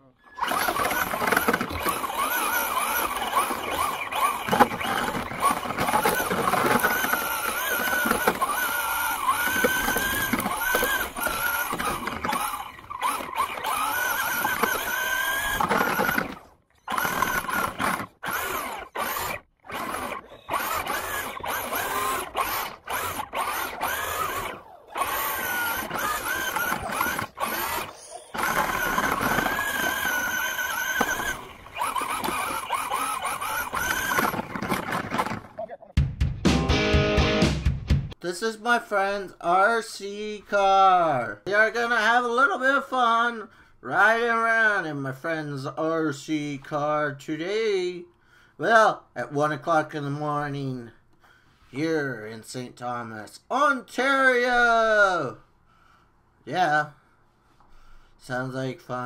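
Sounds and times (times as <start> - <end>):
electric motor and gears whining: 0.2 - 35.7.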